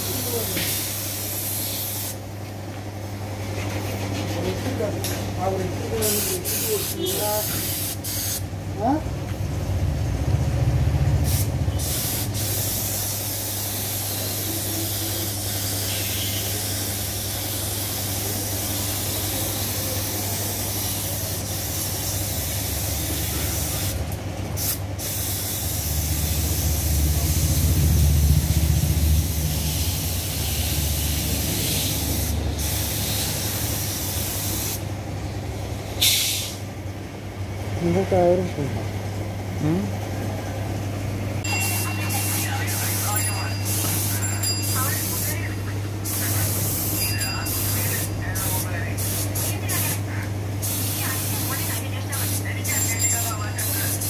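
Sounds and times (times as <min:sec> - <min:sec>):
paint spray gun hissing: 0:00.0 - 0:02.2, 0:06.0 - 0:08.5, 0:11.2 - 0:24.0, 0:24.6 - 0:27.4, 0:29.4 - 0:34.8, 0:36.0 - 0:36.6, 0:49.0 - 0:50.0, 0:50.6 - 0:51.5, 0:53.7 - 0:54.0.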